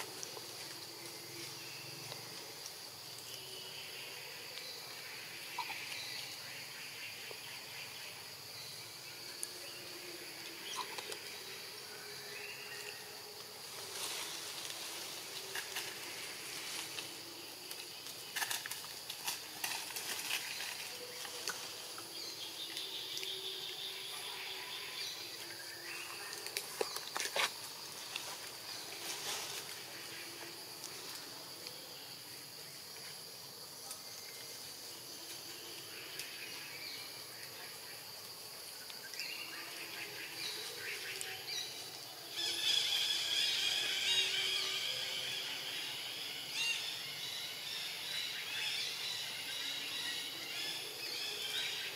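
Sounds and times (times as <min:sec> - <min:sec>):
high insect drone: 0:00.0 - 0:51.9
twigs and leaves crackling: 0:13.4 - 0:22.9, 0:26.2 - 0:31.3.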